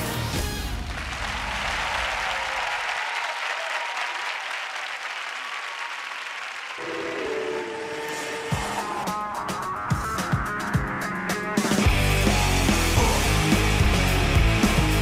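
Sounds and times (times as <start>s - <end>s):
audience applauding and cheering: 0.2s - 9.3s.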